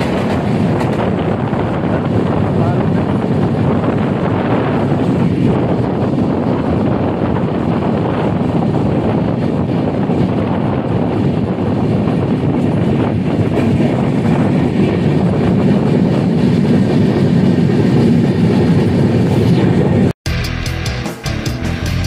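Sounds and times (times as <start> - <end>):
train wheels rumbling on rails: 0.0 - 20.1
music: 20.3 - 22.0.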